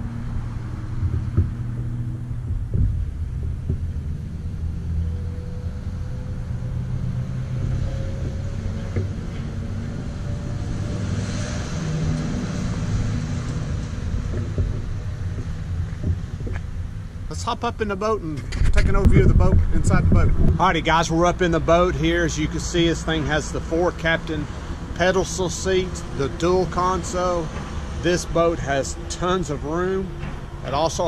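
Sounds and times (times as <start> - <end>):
engine rumbling: 0.0 - 31.0
faint rising whine: 0.0 - 31.0.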